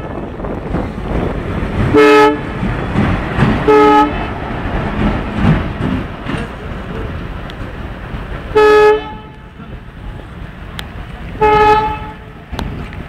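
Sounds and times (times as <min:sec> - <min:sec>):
steady low rumble: 0:00.0 - 0:13.0
horn toots: 0:01.9 - 0:02.6, 0:03.6 - 0:04.3, 0:08.5 - 0:09.5, 0:11.4 - 0:12.4.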